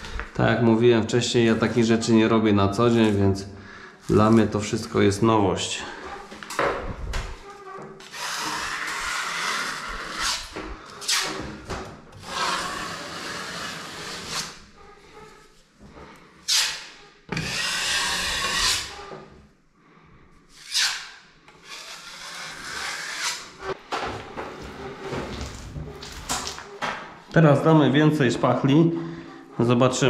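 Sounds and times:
plastering tool scraping wall: 5.9s - 15.3s, 16.5s - 19.3s, 20.5s - 26.8s.

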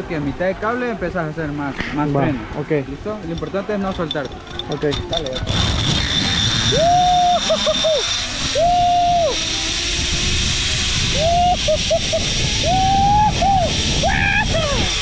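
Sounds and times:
zipline trolley on steel cable: 2.6s - 15.0s
wind rushing past microphone: 5.4s - 15.0s.

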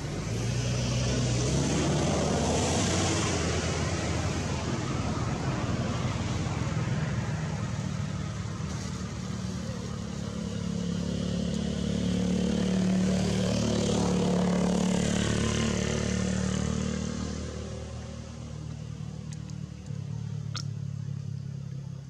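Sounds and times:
passing motor vehicle engine hum: 0.0s - 22.0s.

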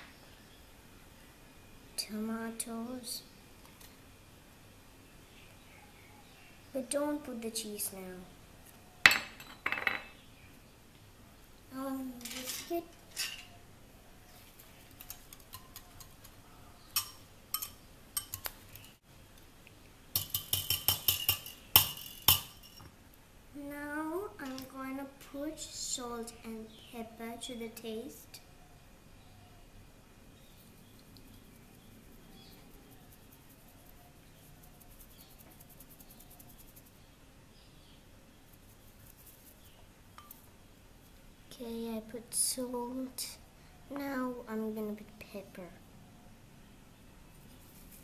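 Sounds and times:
whisk clinking against bowl: 17.0s - 18.5s, 20.1s - 22.8s.

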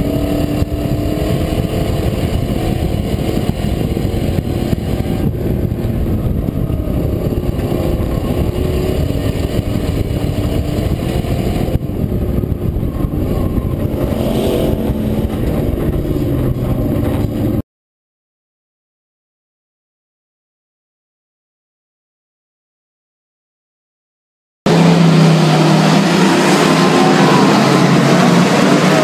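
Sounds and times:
truck engine revving: 0.0s - 17.6s, 24.7s - 29.0s.

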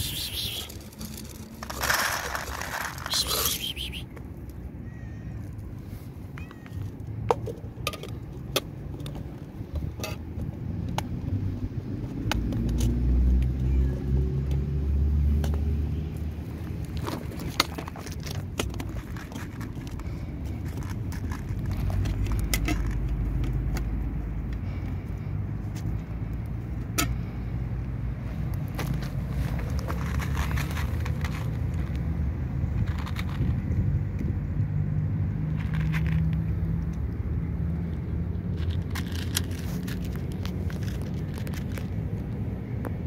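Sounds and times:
gravel stones crunching: 0.0s - 4.6s, 16.4s - 24.1s, 28.2s - 33.8s, 35.5s - 37.0s, 38.3s - 42.5s
vehicle engine rumble: 0.0s - 43.0s.

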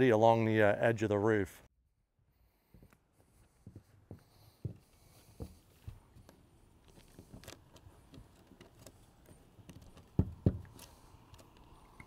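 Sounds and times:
scuffs on plywood: 2.6s - 8.3s
heavy thumps on plywood: 10.1s - 10.8s.

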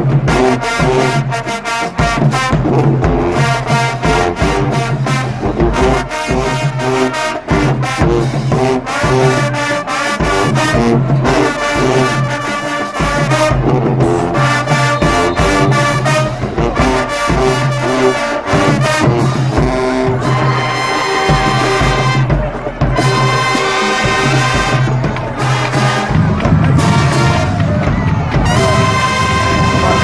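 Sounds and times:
marching band brass riff: 0.0s - 30.0s
drum hits: 13.0s - 17.8s, 21.3s - 30.0s.

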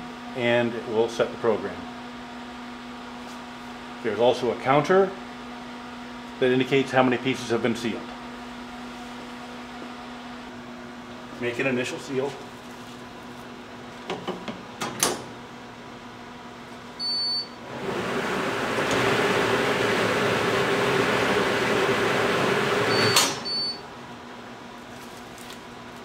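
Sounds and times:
shrink hood hiss and hum: 0.0s - 26.0s
machine beep: 17.0s - 17.6s, 22.9s - 23.8s.

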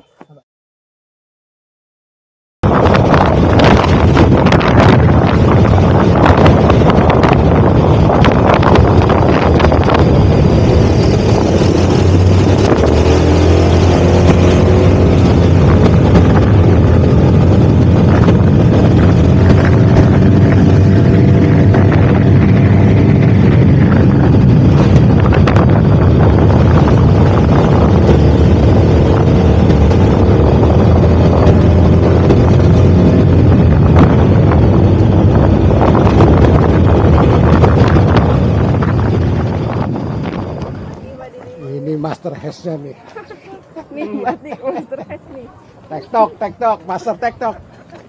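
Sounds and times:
wind rumble on microphone: 2.6s - 48.0s.

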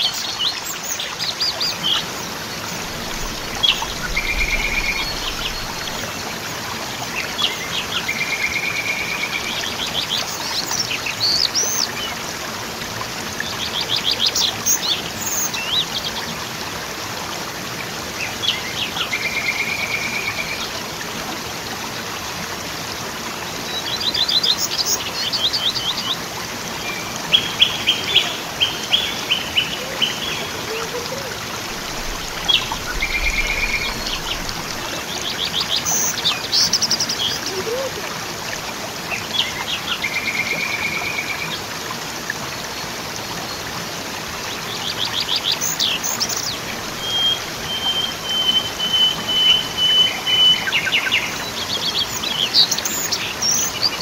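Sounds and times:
songbirds chirping and trilling: 0.0s - 12.2s, 23.6s - 37.9s
waterfall rushing: 0.0s - 54.0s.

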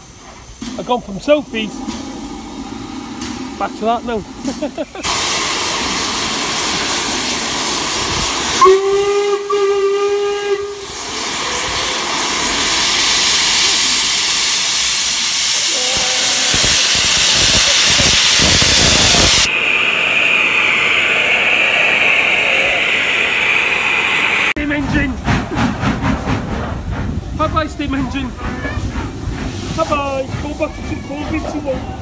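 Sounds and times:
steam hissing from safety valves: 0.0s - 24.6s, 26.8s - 32.0s
steam locomotive whistle: 8.5s - 12.0s.

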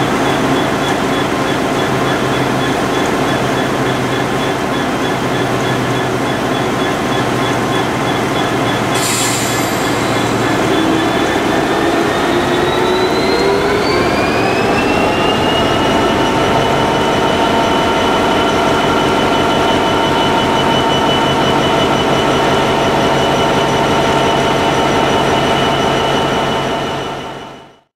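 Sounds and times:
diesel locomotive engine whine: 0.0s - 27.9s.

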